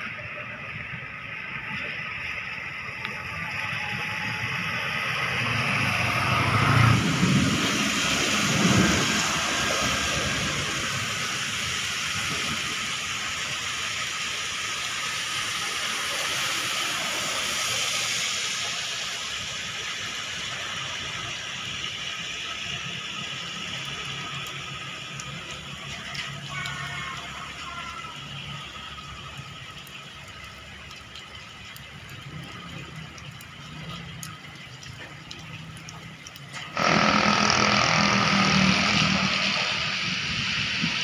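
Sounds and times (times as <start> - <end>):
tyres hissing on wet road: 0.0 - 41.0
cars and motorbikes passing: 3.7 - 12.6, 32.2 - 41.0
low rumble: 31.8 - 41.0.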